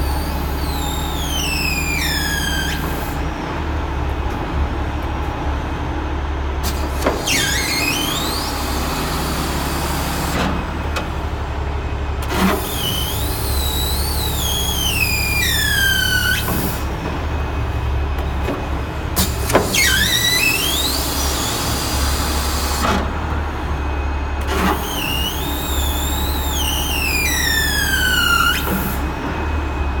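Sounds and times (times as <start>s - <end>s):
high-pitched squeals: 0.0s - 3.2s, 24.7s - 29.0s
hydraulic machinery humming: 0.0s - 30.0s.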